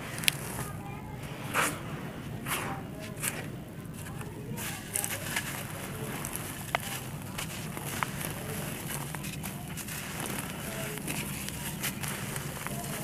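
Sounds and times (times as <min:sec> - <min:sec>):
sand crumbling under hands: 0:00.0 - 0:13.0
sand crunching: 0:00.0 - 0:13.0
short swishes: 0:01.4 - 0:03.5.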